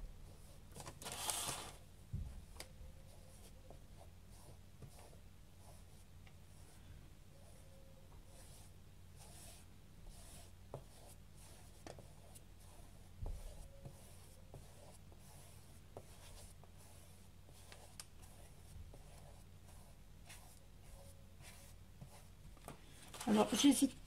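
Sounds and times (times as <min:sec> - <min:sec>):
low steady hum: 0:00.0 - 0:24.0
paintbrush swishing on cardboard: 0:08.2 - 0:22.4.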